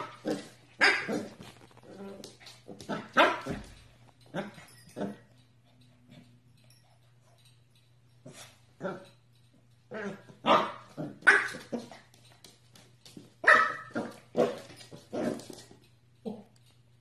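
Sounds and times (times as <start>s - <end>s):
puppy barking: 10.0s - 11.8s, 13.4s - 14.6s.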